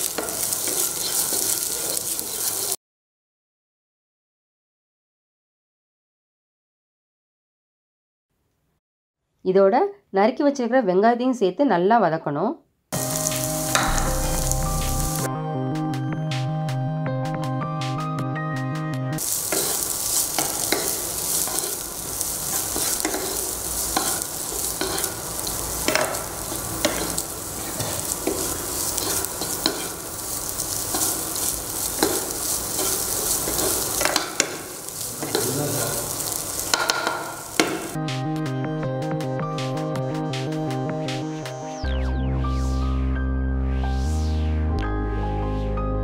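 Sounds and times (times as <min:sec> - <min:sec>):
onions sizzling in oil: 0:00.0 - 0:02.8, 0:13.0 - 0:15.3, 0:19.2 - 0:38.0
wooden spatula scraping pan: 0:00.0 - 0:02.8, 0:19.2 - 0:38.0
background music: 0:13.0 - 0:19.2, 0:38.0 - 0:46.0
spatula clicking on pan: 0:22.8 - 0:23.4, 0:25.8 - 0:27.2, 0:30.9 - 0:35.5, 0:36.6 - 0:37.9.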